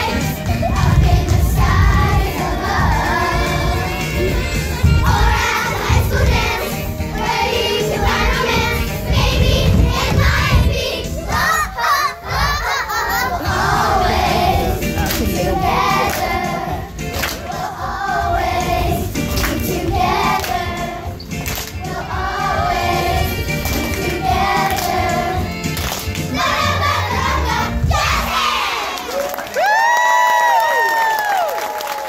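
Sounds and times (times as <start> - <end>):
children singing: 0.0 - 21.2, 21.8 - 25.6
music playing: 0.0 - 29.1
audience crowd noise: 26.4 - 32.0.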